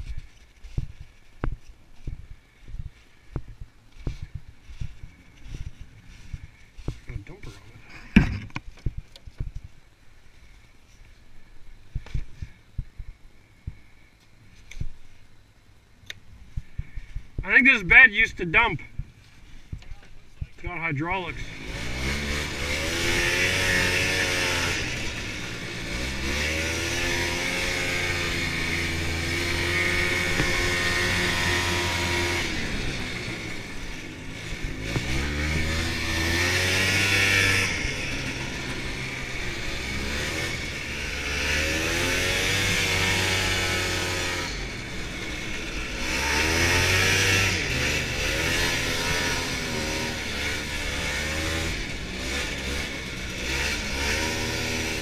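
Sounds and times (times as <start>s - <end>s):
snowmobile engine revving: 20.6s - 55.0s.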